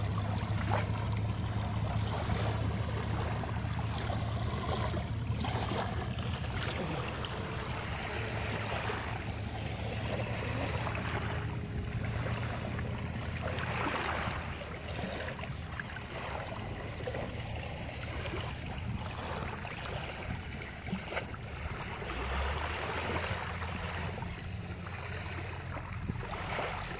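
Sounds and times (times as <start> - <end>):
low rumble: 0.0 - 20.8
surf washing over sand: 0.0 - 26.9.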